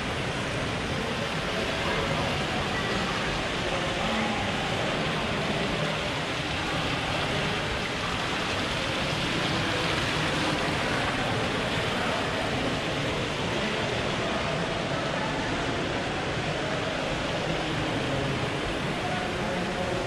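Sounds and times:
fountain water splashing: 0:00.0 - 0:20.0.

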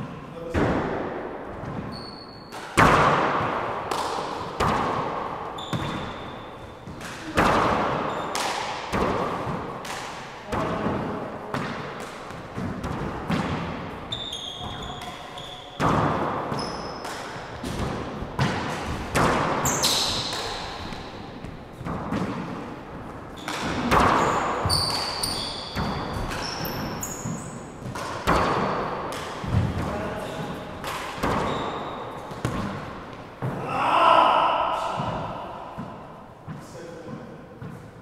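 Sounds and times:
handball hitting walls and floor: 0:00.0 - 0:38.0
sneaker squeaks: 0:01.6 - 0:02.8, 0:05.5 - 0:07.0, 0:08.0 - 0:08.4, 0:14.0 - 0:17.7, 0:19.6 - 0:21.2, 0:23.3 - 0:32.8.

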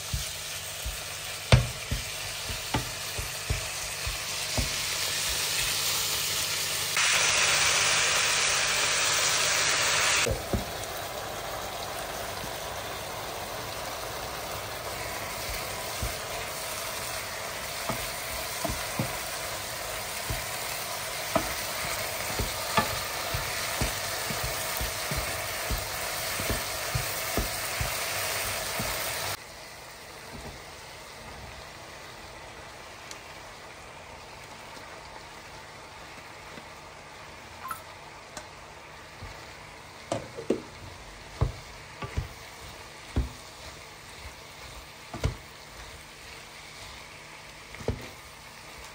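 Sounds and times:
spatula scraping and tapping pan: 0:00.0 - 0:05.9, 0:15.4 - 0:16.4, 0:17.8 - 0:29.2, 0:40.1 - 0:46.2, 0:47.7 - 0:48.2
meat sizzling in a frying pan: 0:00.0 - 0:48.9.

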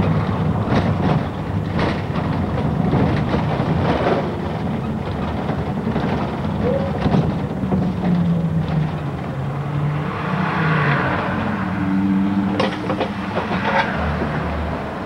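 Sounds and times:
bus diesel engine running: 0:00.0 - 0:09.8.

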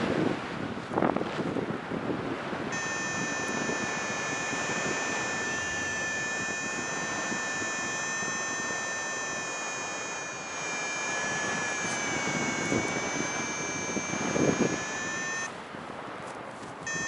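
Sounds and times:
wind on microphone: 0:00.0 - 0:17.0
high-pitched electronic tone: 0:02.8 - 0:15.5.

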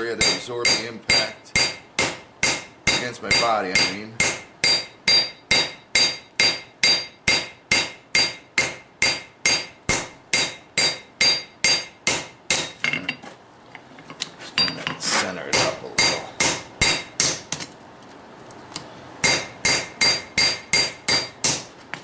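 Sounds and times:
hammer striking steel on anvil: 0:00.2 - 0:13.1, 0:15.5 - 0:17.6, 0:19.2 - 0:21.7.

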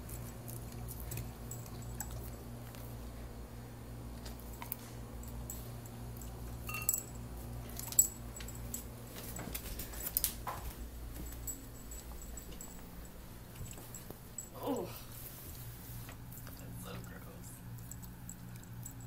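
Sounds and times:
low steady hum: 0:00.0 - 0:19.0
dog collar tags jingling: 0:06.7 - 0:14.6.

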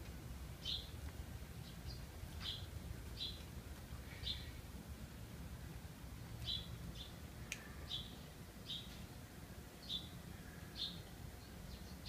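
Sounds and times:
small bird chirping: 0:00.6 - 0:01.0, 0:01.6 - 0:04.6, 0:06.4 - 0:09.0, 0:09.8 - 0:12.0.

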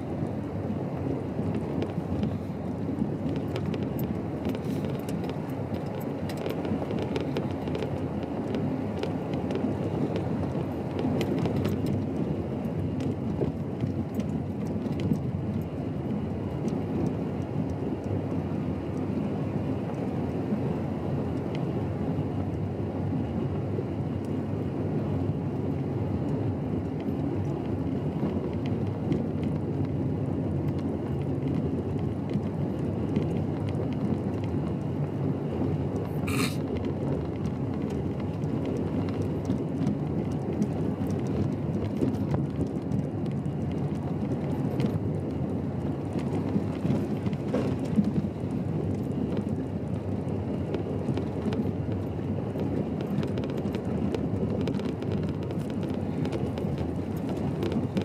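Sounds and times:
tyres on gravel and engine: 0:00.1 - 0:17.1, 0:30.6 - 0:58.0.

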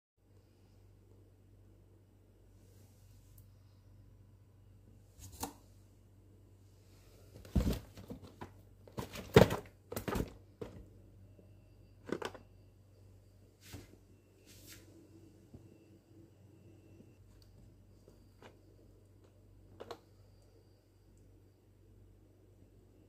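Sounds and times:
cardboard boxes knocking and rustling: 0:07.4 - 0:10.9.

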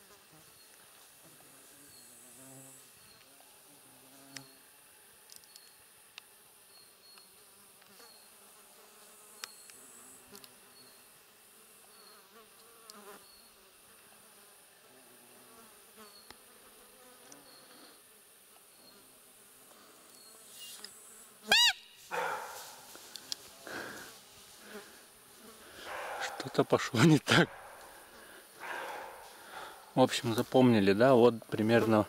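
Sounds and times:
faint insect buzzing: 0:00.0 - 0:32.0.

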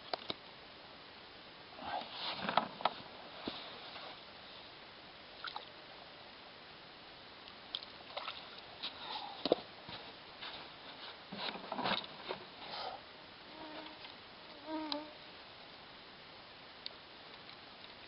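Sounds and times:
insect buzzing past: 0:12.8 - 0:15.2.

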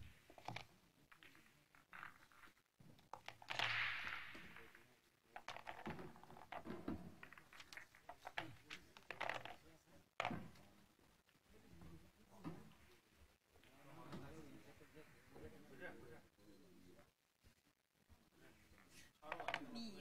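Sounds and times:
muffled voices: 0:08.1 - 0:17.6.

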